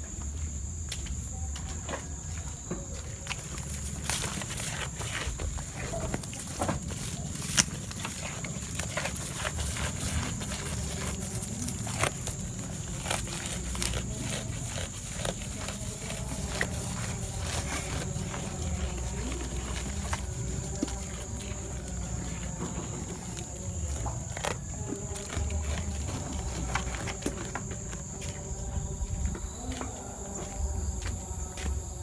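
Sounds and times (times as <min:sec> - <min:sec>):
goat chewing leaves: 0:01.8 - 0:31.8
leaves rustling: 0:03.0 - 0:28.4.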